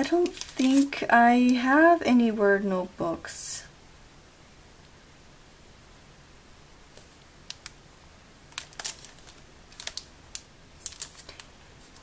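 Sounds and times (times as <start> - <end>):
plastic wrapping crinkling: 0.0 - 1.5, 8.5 - 12.0.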